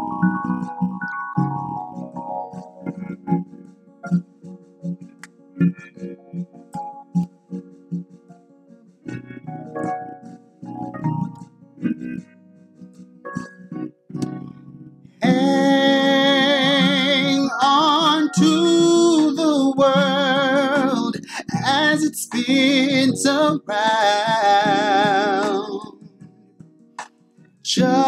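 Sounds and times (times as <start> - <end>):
man singing: 15.2 - 26.0, 27.6 - 28.0.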